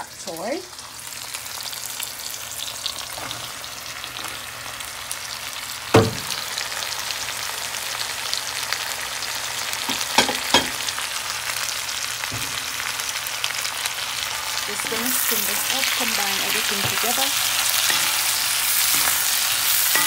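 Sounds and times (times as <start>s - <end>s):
vegetables sizzling in hot oil: 0.0s - 20.0s
sharp knock: 6.0s - 6.3s.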